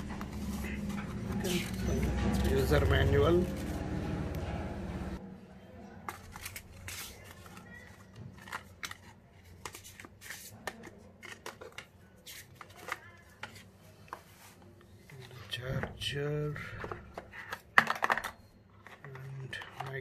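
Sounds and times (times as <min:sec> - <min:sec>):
paper and cardboard rustling: 0:00.0 - 0:04.2, 0:06.1 - 0:15.9.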